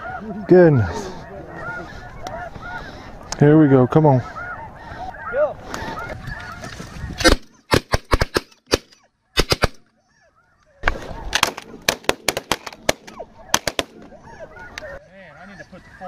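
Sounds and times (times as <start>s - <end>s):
geese honking: 0.0s - 7.6s, 8.9s - 11.7s, 12.5s - 16.0s
shotgun blasts: 7.2s - 9.8s, 11.4s - 14.0s.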